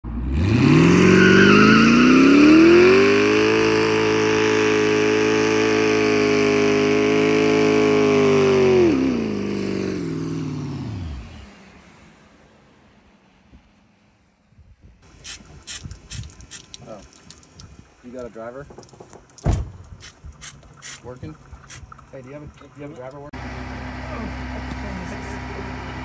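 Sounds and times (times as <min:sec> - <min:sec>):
pickup truck engine revving hard: 0:00.1 - 0:11.6.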